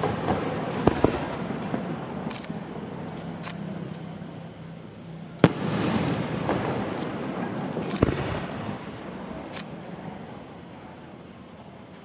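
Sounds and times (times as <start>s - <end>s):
firework bangs: 0.0s - 3.3s, 5.4s - 9.5s
firework crackle: 0.0s - 11.0s.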